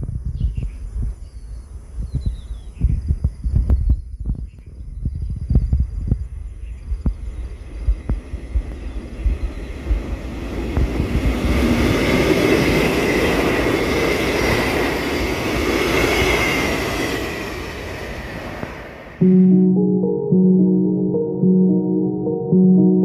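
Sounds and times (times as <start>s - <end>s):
wind thumps on microphone: 0.0s - 13.4s
train wheels rumbling on rails: 6.9s - 19.2s.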